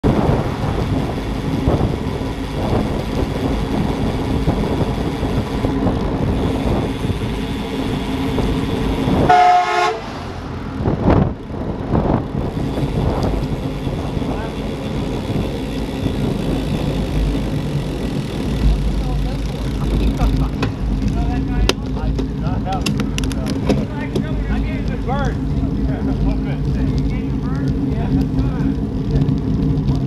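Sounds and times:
wind rushing over microphone: 0.0 - 30.0
vehicle horn honking: 9.2 - 10.2.

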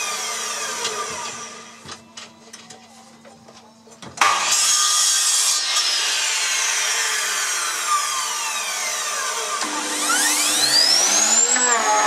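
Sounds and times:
chop saw blade spinning down: 4.2 - 12.0.

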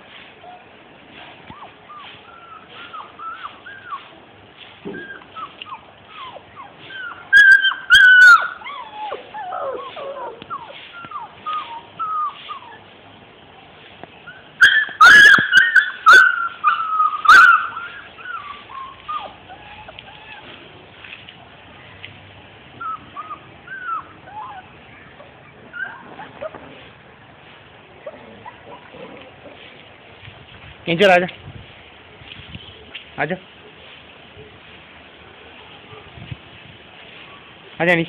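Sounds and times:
puppies yelping loudly: 1.5 - 4.2, 5.0 - 12.8, 14.3 - 20.6, 22.8 - 26.9
puppies whining: 1.5 - 4.3, 4.9 - 12.9, 14.2 - 20.7, 22.8 - 27.0, 28.0 - 29.5.

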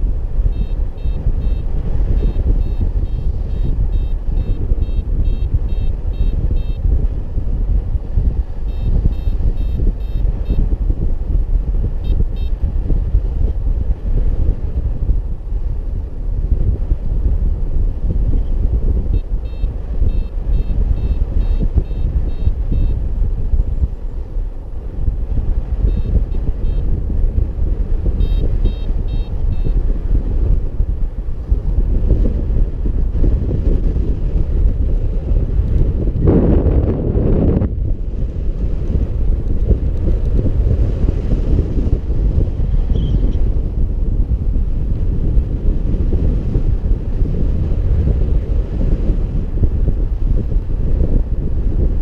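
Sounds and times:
wind buffeting microphone: 0.0 - 52.0
variometer beeping: 0.4 - 6.9, 8.6 - 10.7, 12.0 - 12.6, 19.1 - 23.0, 25.8 - 26.9, 28.2 - 29.8.

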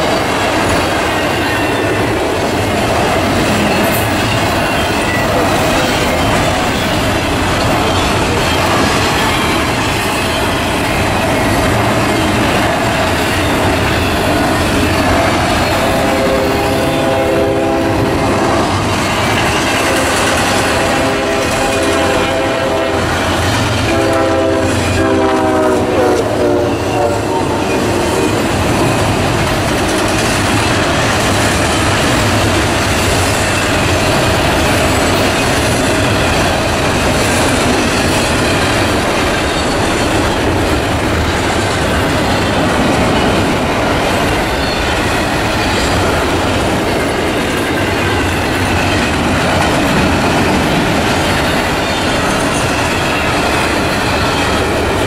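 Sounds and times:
train cars rolling on rails: 0.0 - 55.0
train horn chord: 15.7 - 18.8, 19.8 - 28.2.

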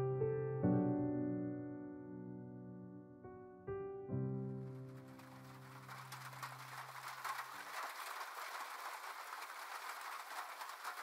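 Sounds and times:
held piano chord: 0.0 - 6.6
rain pattering: 4.6 - 11.0.

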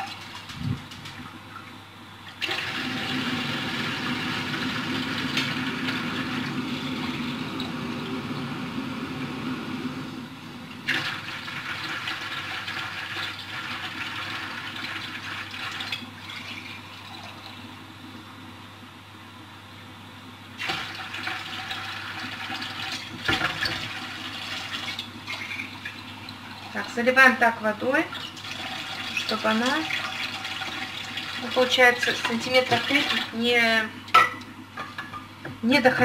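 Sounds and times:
water filling a container: 2.4 - 9.8, 10.8 - 17.8, 20.6 - 27.2, 28.0 - 33.6.

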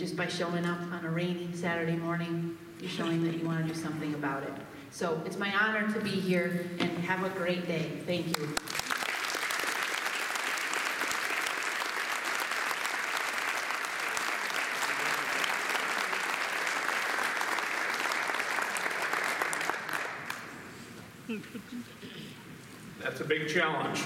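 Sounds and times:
audience applauding: 8.3 - 20.7.

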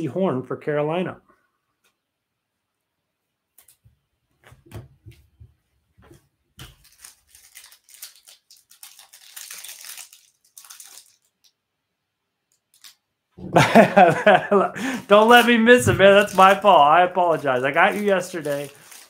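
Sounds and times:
plastic card sleeves crinkling: 6.6 - 11.7, 12.5 - 13.1, 14.2 - 19.0.

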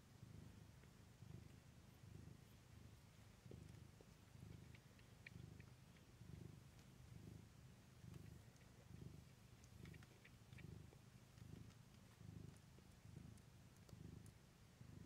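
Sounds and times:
cat purring: 0.0 - 15.0
faint clicks: 3.6 - 7.0, 8.1 - 14.4.

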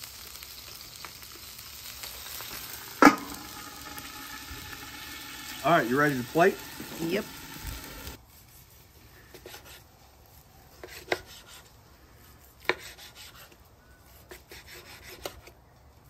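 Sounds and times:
knife sawing through meat: 12.6 - 13.6, 14.2 - 15.4.

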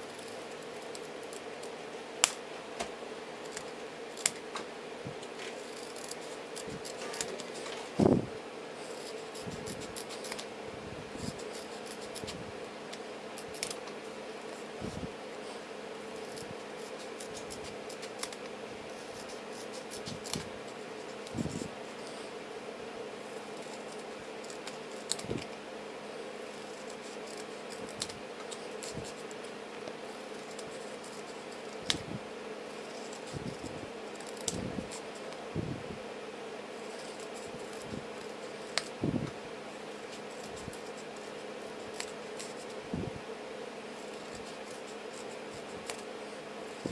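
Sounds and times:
steady low hum: 0.0 - 46.9
scissors snipping paper: 3.4 - 4.5, 5.2 - 7.9, 8.9 - 10.5, 11.2 - 15.0, 16.1 - 22.2, 23.4 - 25.6, 26.4 - 32.1, 32.7 - 35.4, 36.8 - 42.8, 43.9 - 46.1.

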